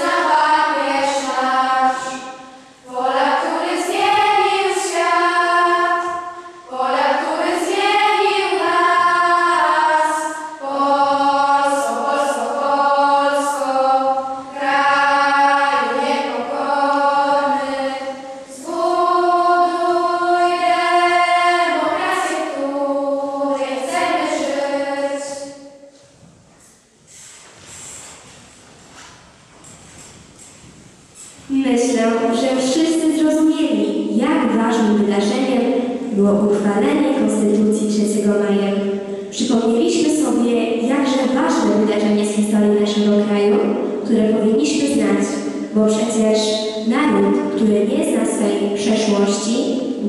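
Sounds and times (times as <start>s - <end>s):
girls choir singing: 0.0s - 25.9s.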